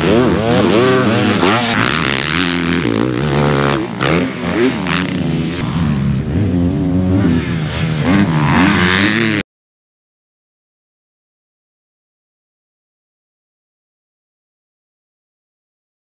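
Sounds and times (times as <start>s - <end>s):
motocross bike engines revving: 0.0s - 9.4s.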